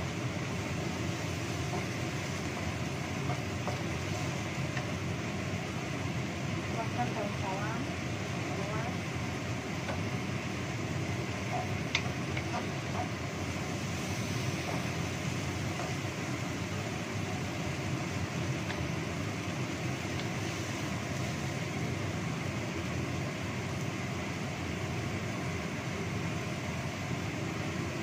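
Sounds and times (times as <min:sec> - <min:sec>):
paste sizzling in oil in a wok: 0:00.0 - 0:28.0
wooden spatula knocking on pan: 0:01.7 - 0:04.9.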